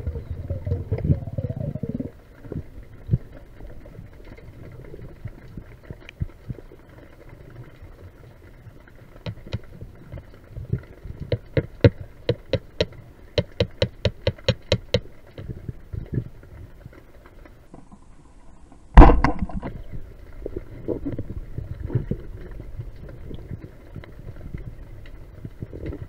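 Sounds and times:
underwater rush of water: 0.0s - 26.0s
sharp underwater clicks: 9.1s - 17.0s.

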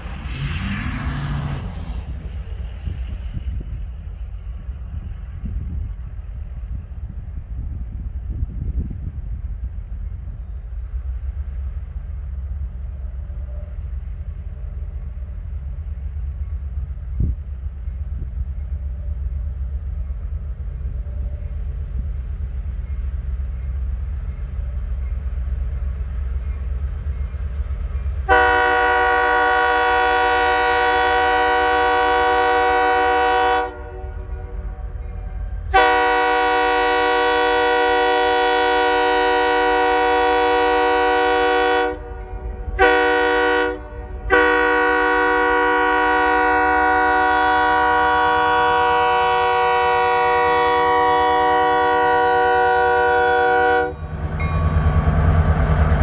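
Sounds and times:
low train rumble: 0.0s - 56.0s
locomotive air horn blasts: 28.3s - 34.5s, 35.7s - 54.1s.

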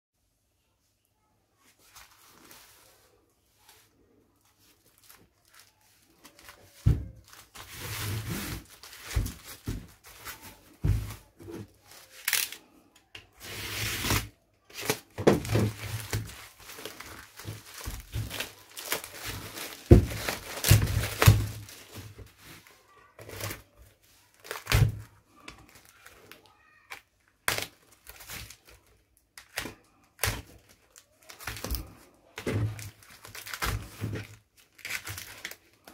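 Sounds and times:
plastic and cardboard crinkling: 1.6s - 35.9s
plastic and tape ripping: 11.5s - 12.8s, 13.4s - 23.7s, 24.3s - 35.9s.

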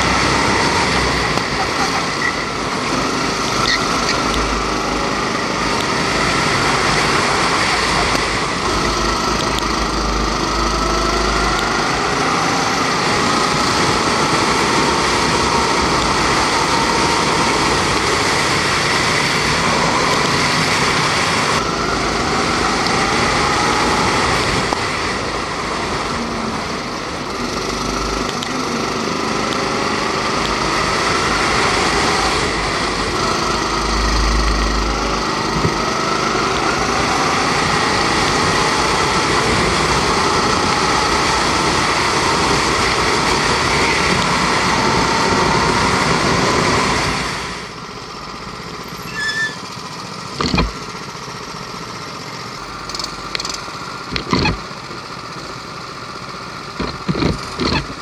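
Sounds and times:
go-kart engine running hard: 0.0s - 58.0s.

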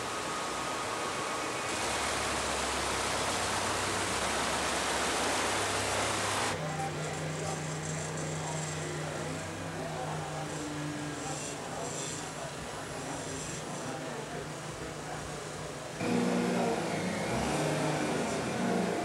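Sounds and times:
stream water rushing over rocks: 0.0s - 6.6s.

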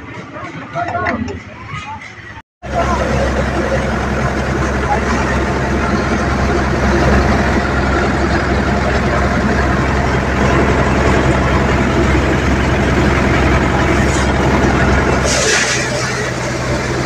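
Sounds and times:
thresher drum whirring: 0.0s - 17.0s
tractor diesel engine running: 2.0s - 17.0s
hissing threshing noise: 3.6s - 17.0s.

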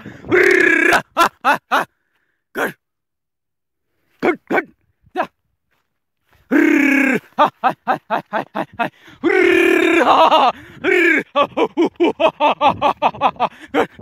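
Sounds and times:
man shouting calls: 0.3s - 1.9s, 2.6s - 2.8s, 4.2s - 5.4s, 6.5s - 7.7s, 9.2s - 11.3s.

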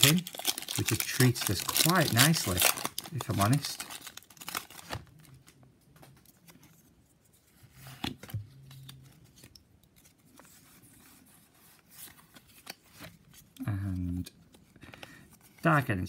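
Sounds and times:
trading cards shuffled: 0.0s - 5.0s.

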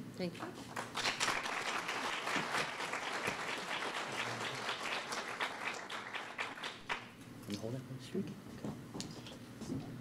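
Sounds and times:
audience applauding: 0.8s - 7.1s.

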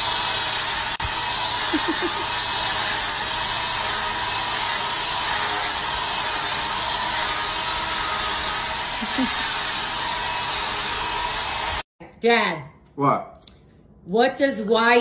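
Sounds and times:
angle grinder whining: 0.0s - 11.8s.

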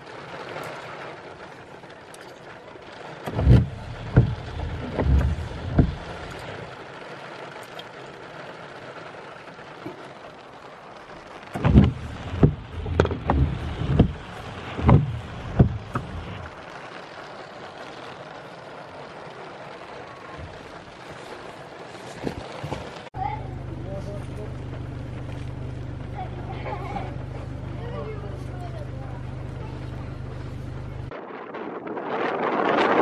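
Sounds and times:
rain and wind outside car: 0.0s - 33.0s
heavy low thuds: 3.3s - 6.7s, 11.6s - 16.5s.

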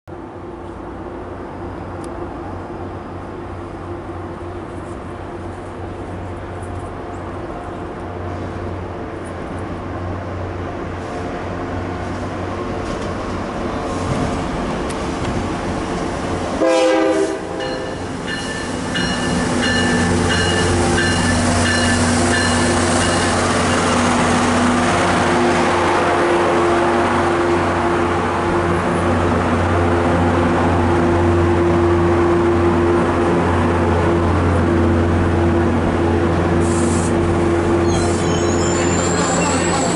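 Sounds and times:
diesel locomotive engine drone: 0.1s - 39.9s
train horn blast: 16.6s - 18.0s
train wheels rolling: 17.2s - 25.9s
locomotive bell ringing: 17.6s - 24.2s, 37.8s - 39.9s.

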